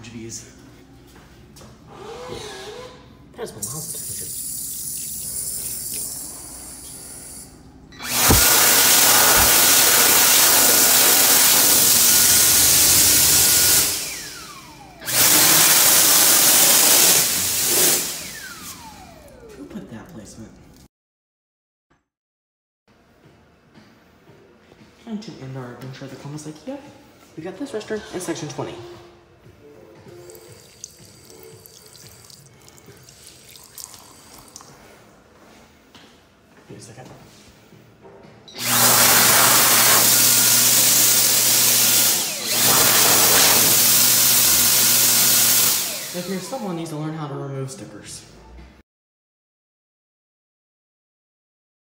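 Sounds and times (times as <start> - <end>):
faucet running water: 3.6 - 7.4, 8.0 - 14.1, 30.2 - 34.8
hand dryer blowing air: 8.0 - 19.1, 38.6 - 46.8.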